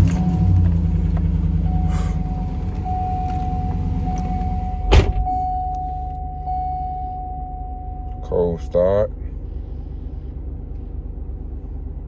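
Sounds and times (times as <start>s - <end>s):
truck engine idling: 0.0s - 12.0s
sharp thump: 4.9s - 5.3s.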